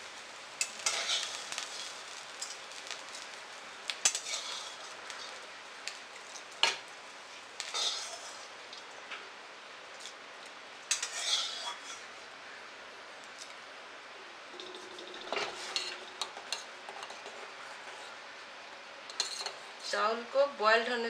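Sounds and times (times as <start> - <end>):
metal spoon clinking and scraping: 4.0 - 4.7, 10.9 - 12.0, 19.1 - 19.6.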